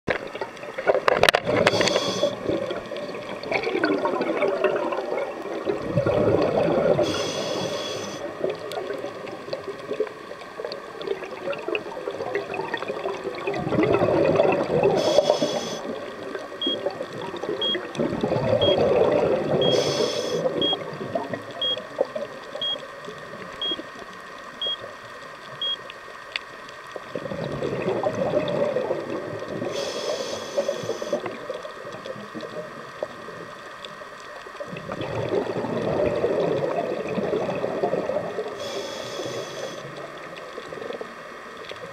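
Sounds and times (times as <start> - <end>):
exhaled bubbles gurgling: 0.1 - 23.8, 26.9 - 41.9
regulator inhalation hiss: 1.6 - 2.5, 7.0 - 8.3, 14.9 - 16.0, 19.6 - 20.6, 29.7 - 31.4, 38.6 - 40.0
faint high ticks: 21.4 - 27.1.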